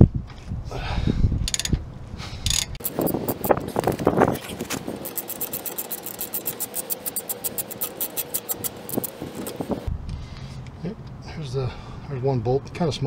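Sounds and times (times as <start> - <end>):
socket ratchet clicking: 1.5 - 1.8, 2.5 - 3.6, 5.0 - 9.6.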